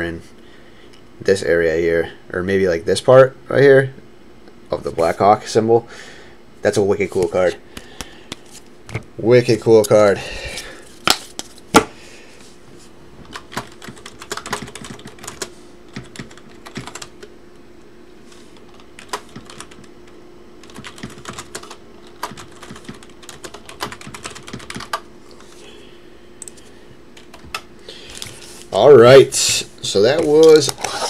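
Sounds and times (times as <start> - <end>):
faint steady hum: 0.0 - 31.0
keyboard typing: 13.3 - 17.2, 18.7 - 19.9, 20.6 - 25.0.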